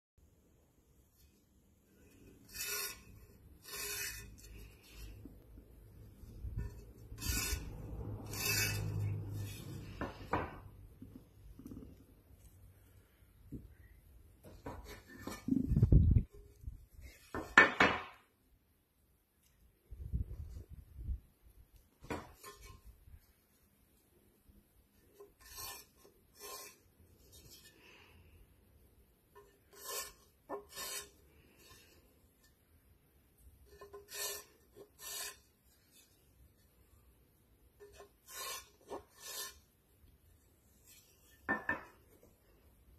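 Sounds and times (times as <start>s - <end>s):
rasping paintbrush scrapes: 1.0s - 12.7s, 14.4s - 17.8s, 22.1s - 23.6s, 24.9s - 28.4s, 29.3s - 32.7s, 33.3s - 42.6s
ceramic ware handled on wood: 14.4s - 16.4s, 17.0s - 18.2s, 41.2s - 42.3s.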